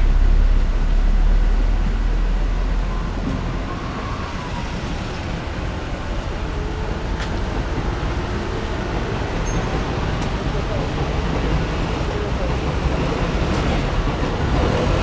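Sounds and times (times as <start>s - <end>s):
low rumble with hiss: 0.0s - 3.2s.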